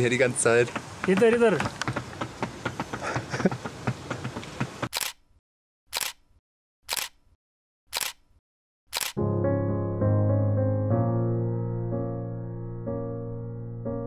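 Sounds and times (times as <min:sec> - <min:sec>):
camera shutter clicks: 0:04.9 - 0:05.2, 0:05.9 - 0:06.2, 0:06.9 - 0:07.2, 0:07.9 - 0:08.2, 0:08.9 - 0:09.2
piano music: 0:09.2 - 0:14.0.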